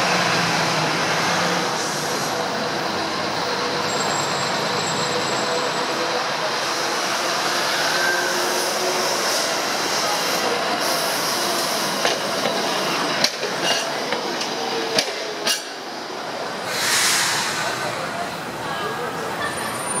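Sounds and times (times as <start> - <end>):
streetcar rumbling on rails: 0.0 - 20.0
wheels clacking over track joints: 11.6 - 15.9.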